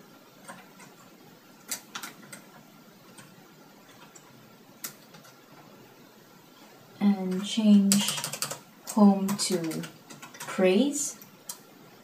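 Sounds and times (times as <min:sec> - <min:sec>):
laptop keys and touchpad clicking: 0:00.4 - 0:05.4, 0:07.2 - 0:10.6.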